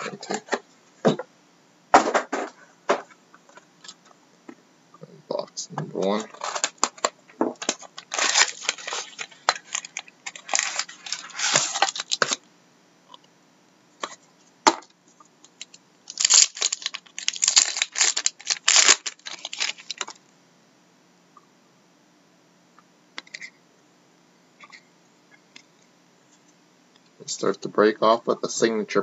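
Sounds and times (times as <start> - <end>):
foil wrapper crinkling and tearing: 6.0 - 12.4, 15.6 - 20.2.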